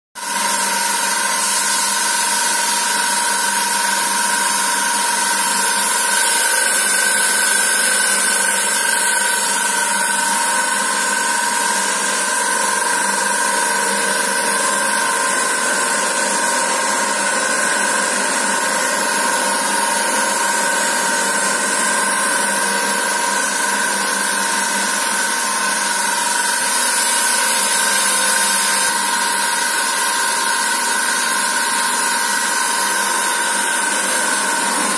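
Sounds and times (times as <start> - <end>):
thread rolling machine whine: 0.2 - 34.9.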